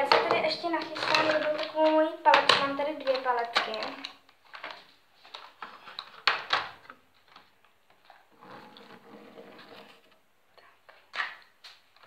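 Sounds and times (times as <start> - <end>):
plastic palettes clacking on table: 0.0 - 8.2
sliding and rustling: 0.1 - 10.2.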